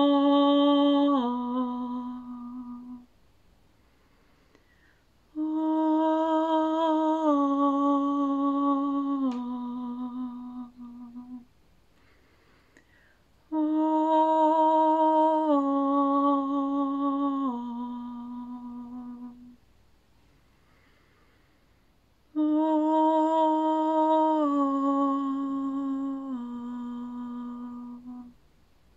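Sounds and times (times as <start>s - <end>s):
woman singing wordless tones: 0.0s - 3.2s, 5.2s - 11.6s, 13.4s - 19.7s, 22.3s - 28.4s.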